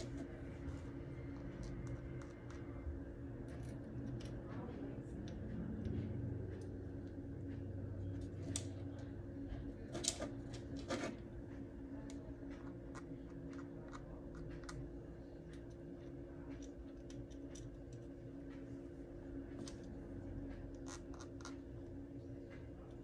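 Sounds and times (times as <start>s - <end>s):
low hum: 0.0s - 23.0s
light clicks and scratches: 3.4s - 7.2s, 8.0s - 18.8s, 19.4s - 23.0s.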